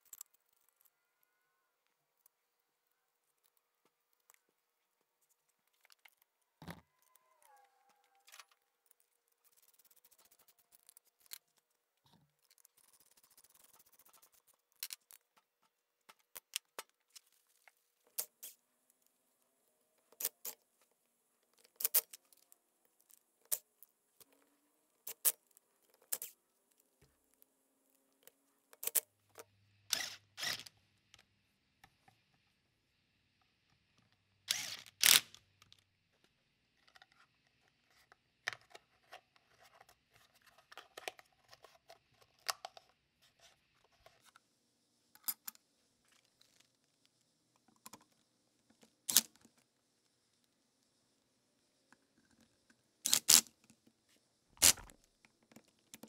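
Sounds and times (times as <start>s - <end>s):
screws clicking against metal: 53.1s - 53.4s.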